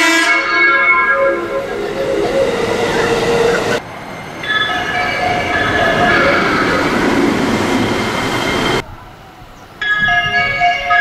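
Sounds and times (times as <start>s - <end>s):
train music horn melody: 0.0s - 3.8s, 4.4s - 7.0s, 9.9s - 11.0s
passing train noise: 0.0s - 11.0s.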